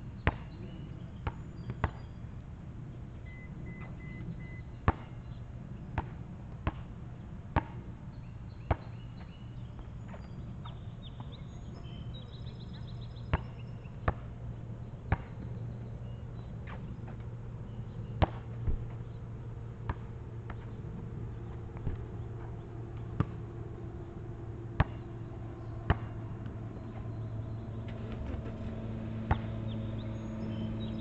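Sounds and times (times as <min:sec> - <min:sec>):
steady low hum: 0:00.0 - 0:31.0
basketball bouncing on asphalt: 0:00.2 - 0:00.6, 0:01.2 - 0:02.2, 0:03.7 - 0:05.3, 0:06.0 - 0:11.9, 0:13.3 - 0:14.4, 0:15.1 - 0:17.3, 0:18.0 - 0:19.2, 0:19.8 - 0:23.4, 0:24.7 - 0:25.1, 0:25.9 - 0:26.2, 0:29.3 - 0:29.6
bird chirping: 0:08.2 - 0:14.0, 0:24.9 - 0:31.0.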